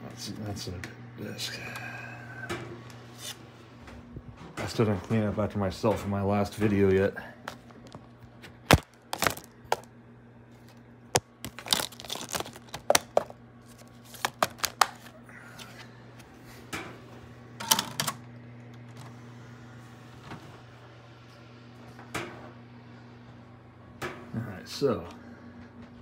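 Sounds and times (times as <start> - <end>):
steady low hum: 0.0 - 26.0
plastic disc cases clicking: 11.2 - 15.1.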